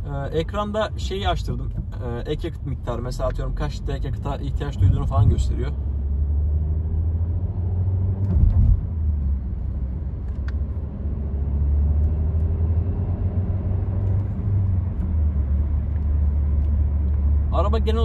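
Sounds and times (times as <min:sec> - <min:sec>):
car engine and road rumble: 0:00.0 - 0:18.0
brief thump: 0:08.2 - 0:08.8.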